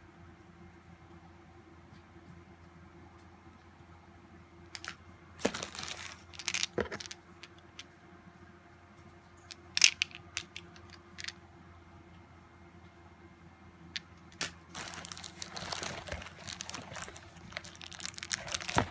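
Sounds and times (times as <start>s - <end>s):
plastic rustling: 4.8s - 7.2s, 14.4s - 18.9s.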